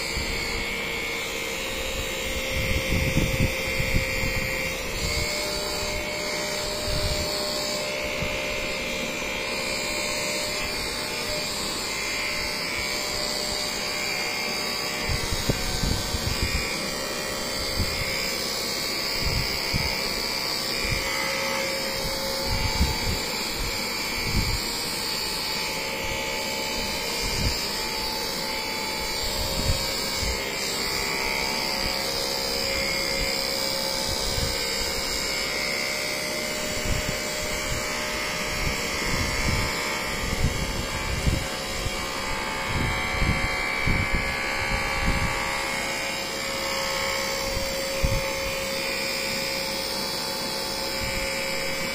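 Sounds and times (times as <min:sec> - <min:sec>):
electric massager motor hum: 0:00.0 - 0:51.9.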